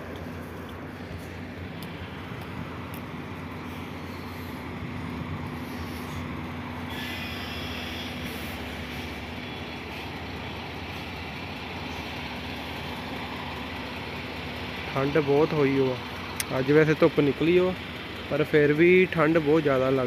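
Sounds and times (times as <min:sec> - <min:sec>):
vehicle engine idling: 0:00.0 - 0:20.0
thin high squeal: 0:06.9 - 0:08.6.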